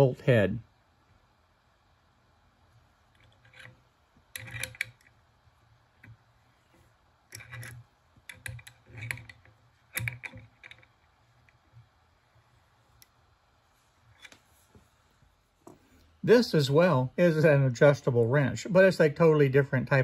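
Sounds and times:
wrench clicking against bolt: 4.4 - 5.1, 7.3 - 10.9.

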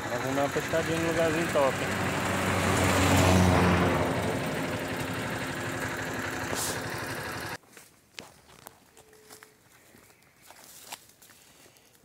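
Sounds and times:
vehicle engine running: 0.0 - 7.6.

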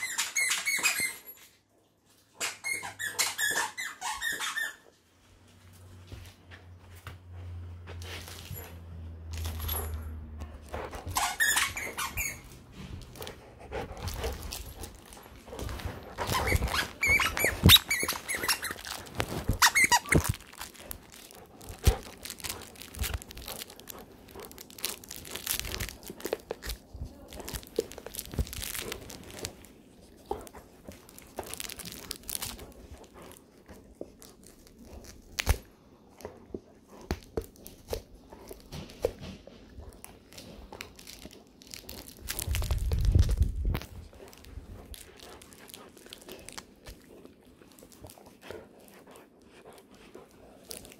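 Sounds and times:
squeaky dog toy squeaking: 0.0 - 1.5, 2.4 - 4.9, 11.1 - 12.7, 16.2 - 20.6
plush toy rustling: 5.2 - 50.9.

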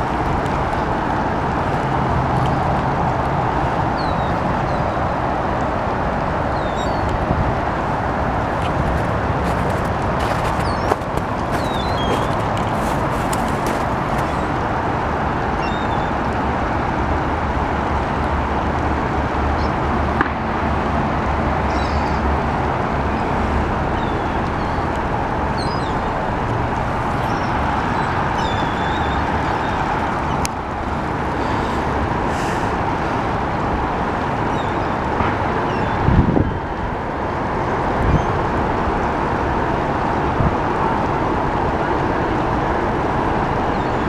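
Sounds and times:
city noise: 0.0 - 44.0
gulls calling: 8.4 - 14.7.

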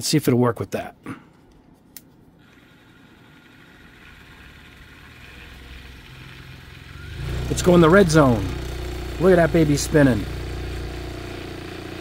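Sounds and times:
paint mixer motor humming: 2.4 - 12.0.

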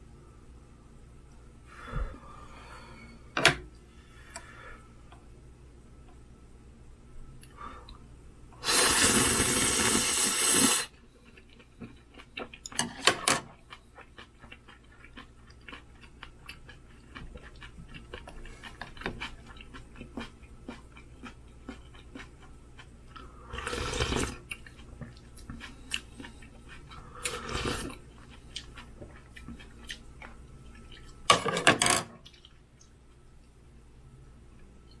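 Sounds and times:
quiet chewing: 10.9 - 12.8, 13.5 - 31.3.

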